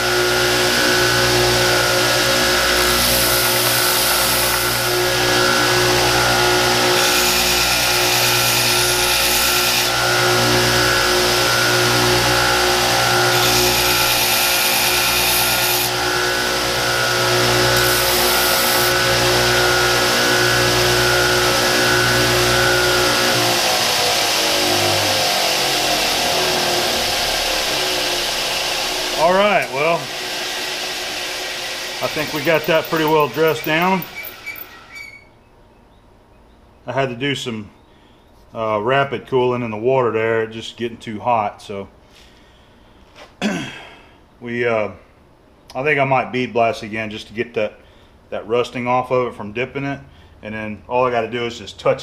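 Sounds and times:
sander motor hum winding down: 0:00.0 - 0:34.8
belt sander grinding metal: 0:00.0 - 0:35.3.

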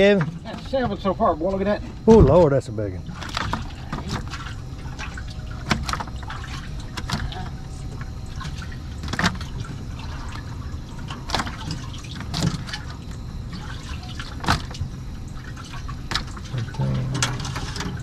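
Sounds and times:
low steady hum: 0:00.0 - 0:18.0
water splashing and dripping: 0:03.1 - 0:16.8.

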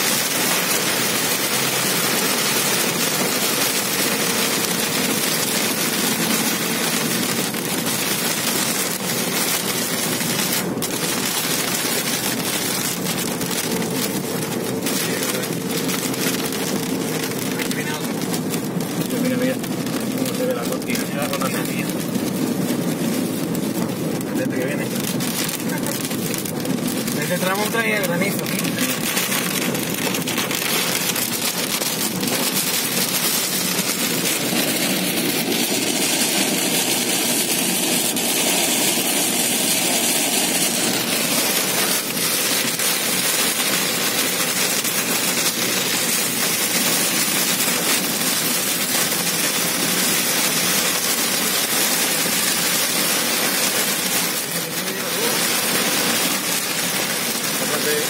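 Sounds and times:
heavy rain on car windshield: 0:00.0 - 0:58.0
tyre spray and road noise: 0:00.0 - 0:58.0.

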